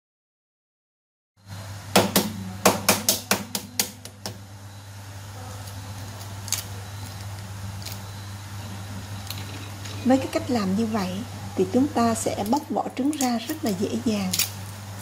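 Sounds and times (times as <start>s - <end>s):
egg shells cracking: 12.2s - 14.8s.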